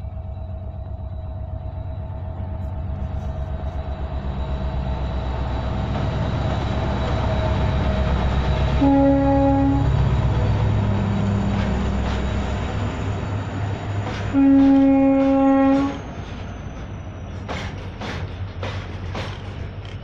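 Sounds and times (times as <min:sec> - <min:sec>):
locomotive engine rumble: 0:00.0 - 0:20.0
train wheel noise: 0:00.0 - 0:20.0
locomotive horn: 0:08.7 - 0:10.2, 0:14.3 - 0:16.0.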